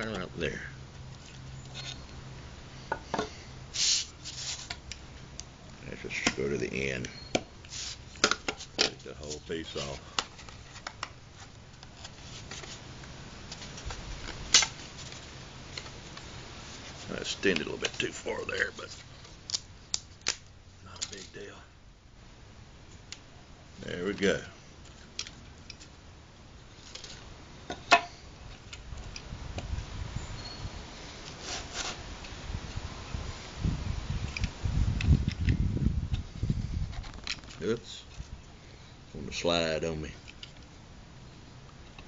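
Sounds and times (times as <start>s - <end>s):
knife scraping along straightedge: 31.3s - 32.0s.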